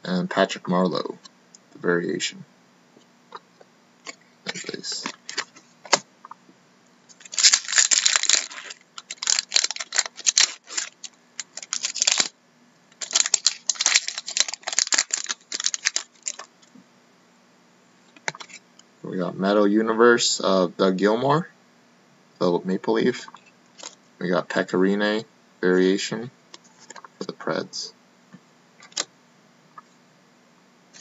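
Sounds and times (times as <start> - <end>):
cards being handled: 4.0 - 6.0, 7.1 - 12.3, 13.0 - 16.5
foil wrapper crinkling and tearing: 7.1 - 12.3, 13.0 - 16.5.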